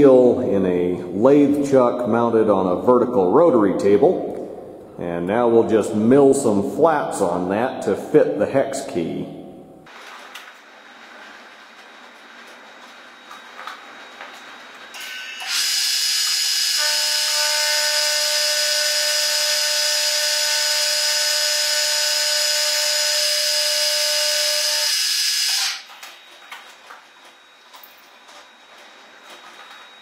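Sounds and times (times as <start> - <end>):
milling machine cutting steel: 14.9 - 25.9.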